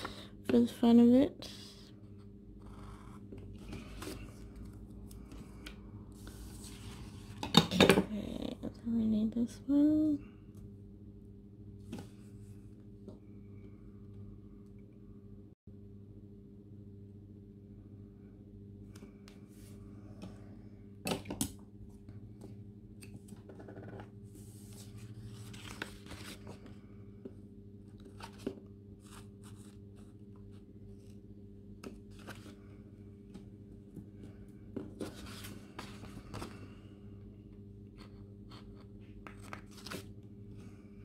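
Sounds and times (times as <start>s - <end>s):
faint low hum: 0.0s - 41.0s
paper rustling: 24.5s - 26.7s.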